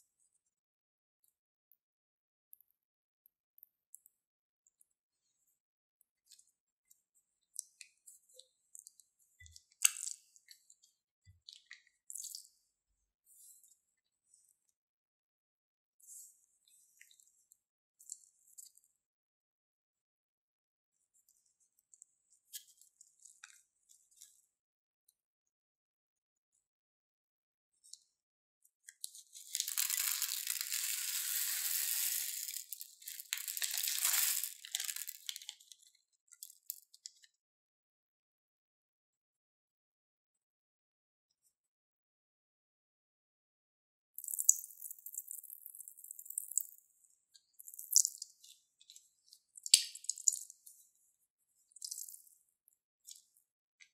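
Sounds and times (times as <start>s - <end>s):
plastic bag crinkling: 29.3s - 35.6s
beads rattling into a bowl: 29.4s - 35.5s.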